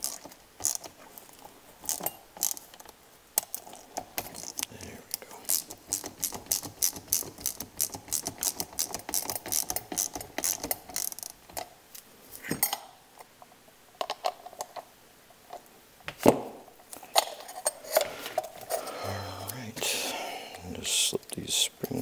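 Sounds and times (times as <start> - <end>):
hand ratchet clicking: 0.0 - 0.9, 1.8 - 2.6, 5.5 - 11.6.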